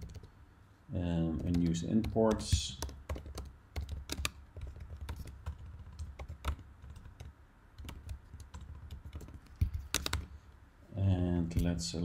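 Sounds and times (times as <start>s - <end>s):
computer keyboard typing: 0.0s - 0.3s, 1.4s - 10.3s.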